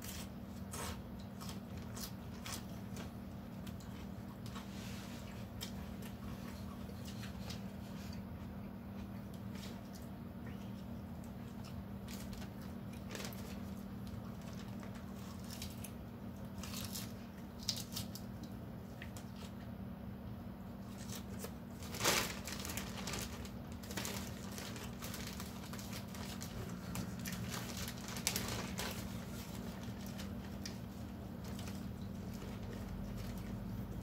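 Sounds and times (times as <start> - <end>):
steady low hum: 0.0 - 34.0
plastic bag crinkling: 12.0 - 15.9, 20.8 - 34.0.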